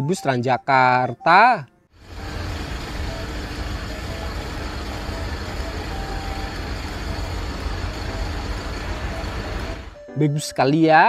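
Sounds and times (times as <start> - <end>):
coach diesel engine rumbling: 2.0 - 10.0.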